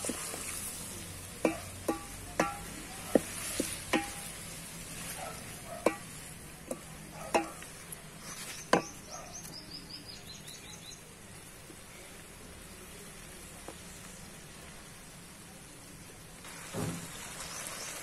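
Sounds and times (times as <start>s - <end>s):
vegetables sizzling: 0.0s - 10.6s, 12.4s - 18.0s
spatula knocking metal pot: 1.4s - 4.4s, 5.8s - 7.8s.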